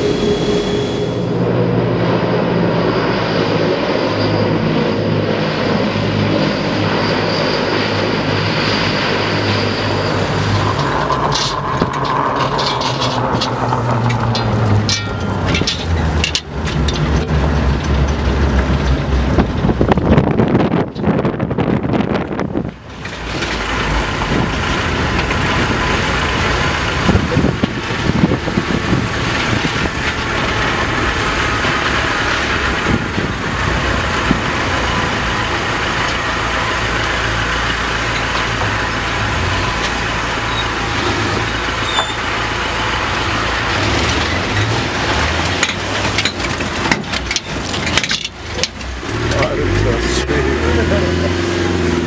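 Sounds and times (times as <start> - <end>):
vehicle engine and road noise: 0.0 - 52.0
knocks and rattles: 10.4 - 21.2, 44.0 - 49.5.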